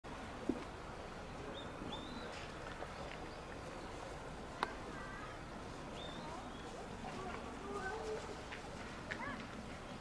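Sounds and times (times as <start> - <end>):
bird chirps: 1.5 - 2.4, 6.0 - 6.8.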